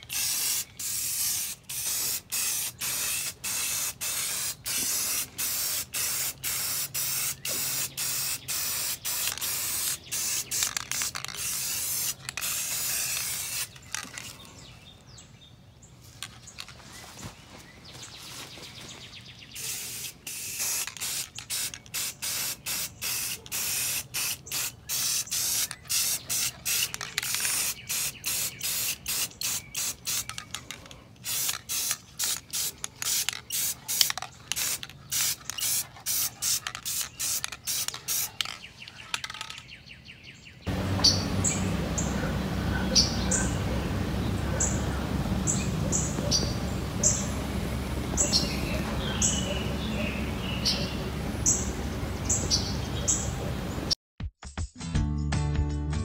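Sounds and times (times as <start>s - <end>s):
aerosol spray hissing: 0.1s - 13.8s, 19.7s - 30.3s, 31.2s - 38.4s, 40.7s - 52.5s.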